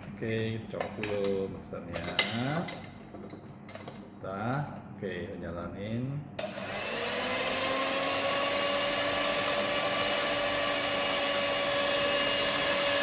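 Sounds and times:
electric hand mixer whine: 0:06.4 - 0:13.0.

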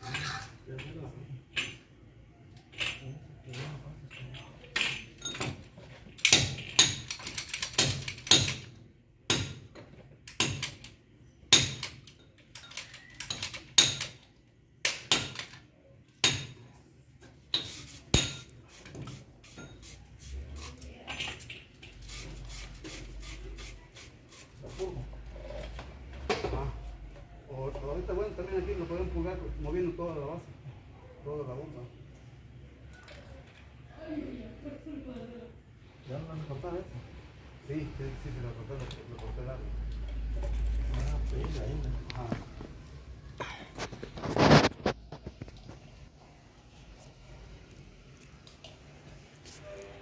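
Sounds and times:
hand tools knocking and clinking: 0:04.0 - 0:15.6, 0:17.5 - 0:18.6.

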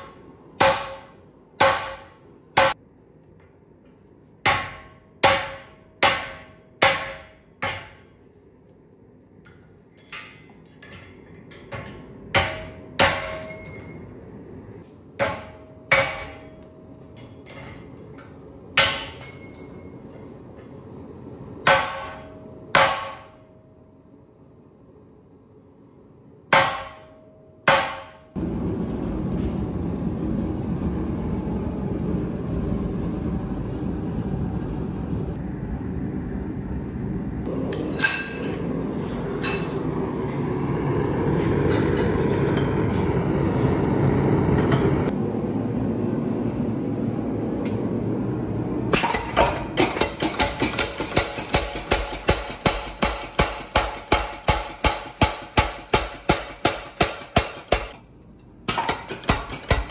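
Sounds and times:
power hammer striking steel: 0:00.0 - 0:02.8, 0:04.4 - 0:08.1, 0:10.1 - 0:14.2, 0:15.2 - 0:17.9, 0:18.7 - 0:20.0, 0:21.6 - 0:23.5, 0:26.5 - 0:28.4, 0:37.5 - 0:38.6, 0:39.4 - 0:40.0, 0:41.3 - 0:43.3, 0:48.9 - 0:58.0, 0:58.7 - 0:59.9
hammer blows on hot steel: 0:48.9 - 0:58.0.

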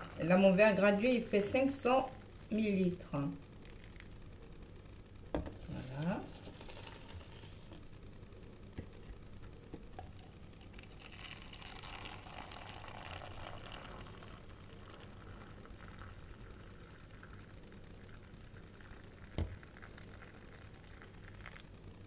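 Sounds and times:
water pouring into bowl: 0:05.6 - 0:07.8, 0:10.0 - 0:21.7.

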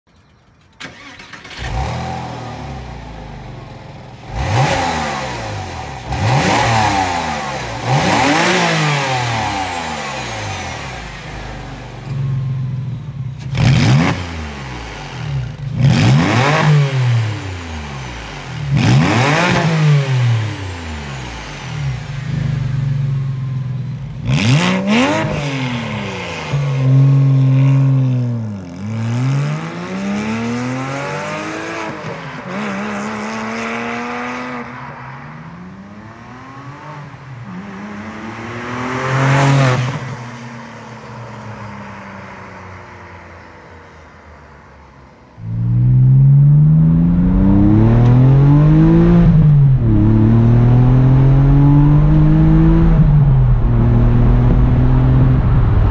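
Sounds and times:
car engine revving: 0:00.8 - 0:12.6, 0:13.3 - 0:40.3, 0:45.3 - 0:55.9
car accelerating away: 0:24.2 - 0:44.0, 0:45.3 - 0:55.9.

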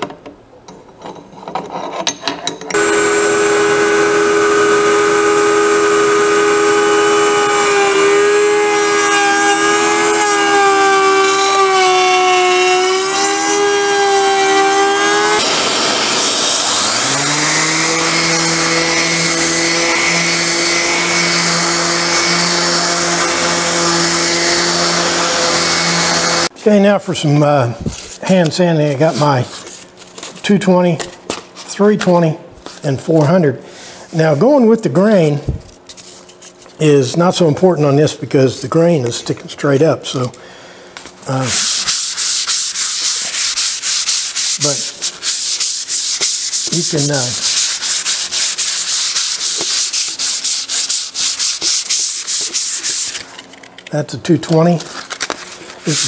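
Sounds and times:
router cutting wood: 0:02.7 - 0:26.5
orbital sander whining: 0:02.8 - 0:26.5, 0:41.4 - 0:53.2.

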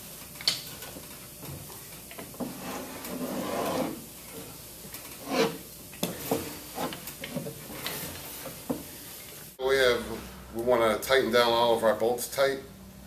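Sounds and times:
scraping rub on wooden bench: 0:02.4 - 0:04.1, 0:05.2 - 0:08.8.

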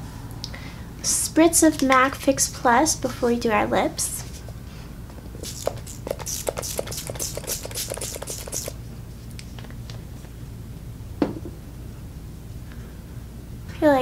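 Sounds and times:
short hissing sprays of mist: 0:05.4 - 0:08.8.

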